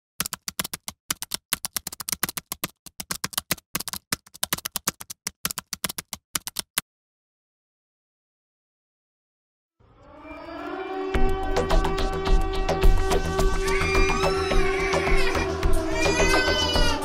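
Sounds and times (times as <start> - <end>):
typewriter keys clacking: 0.2 - 6.8.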